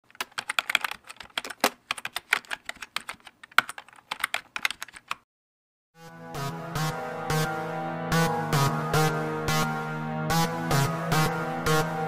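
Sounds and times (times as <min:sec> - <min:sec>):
fast typing on keyboard: 0:00.0 - 0:05.2.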